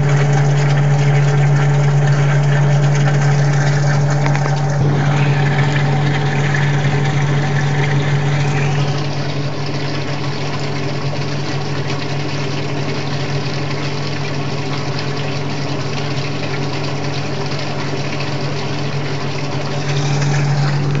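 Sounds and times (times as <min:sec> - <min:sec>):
mechanical drone: 0:04.8 - 0:07.6, 0:19.7 - 0:21.0.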